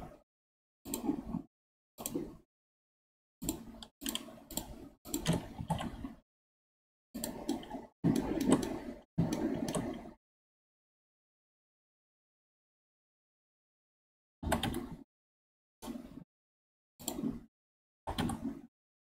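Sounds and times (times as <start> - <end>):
mouse and keyboard clicking: 3.4 - 6.0, 7.2 - 10.0, 18.1 - 18.6.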